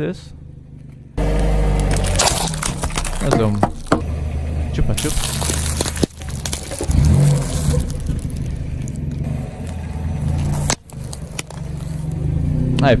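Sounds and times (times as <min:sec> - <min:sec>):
car engine at low revs: 0:00.0 - 0:13.0
tyre rolling over plastic objects: 0:01.8 - 0:04.0, 0:05.0 - 0:12.2.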